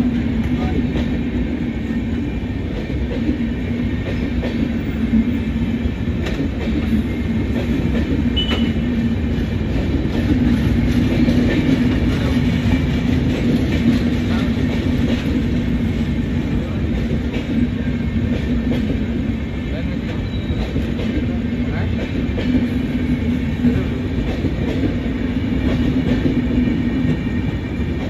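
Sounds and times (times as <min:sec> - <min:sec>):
clickety-clack over rail joints: 0:00.0 - 0:28.0
train wheels rumbling on rails: 0:00.0 - 0:28.0.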